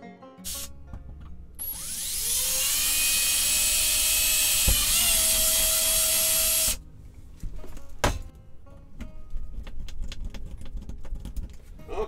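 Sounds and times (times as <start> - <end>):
power drill whining: 0.5 - 0.7, 1.6 - 6.8.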